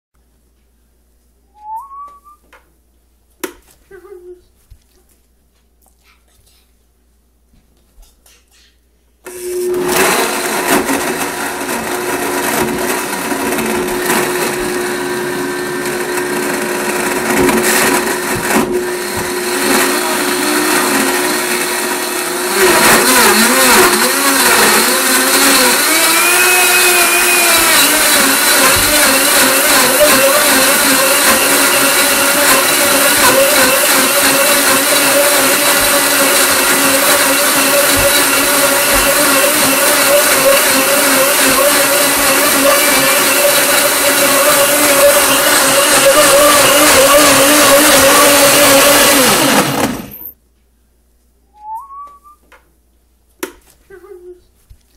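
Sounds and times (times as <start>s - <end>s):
blender running: 9.3s - 50.4s.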